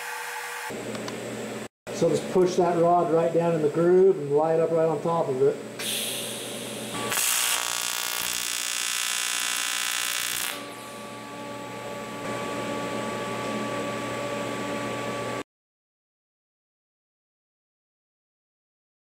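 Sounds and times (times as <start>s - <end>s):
welder gas hiss and hum: 5.8s - 11.1s
welding arc buzzing: 5.8s - 12.3s.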